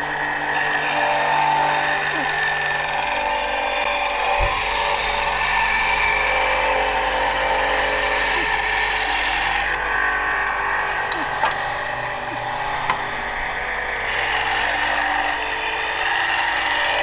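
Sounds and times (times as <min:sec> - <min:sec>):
band saw cutting wood: 0:00.0 - 0:17.0.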